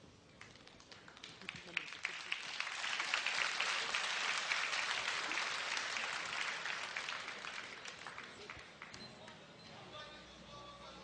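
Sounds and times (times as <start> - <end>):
crowd applauding: 0.4 - 9.0.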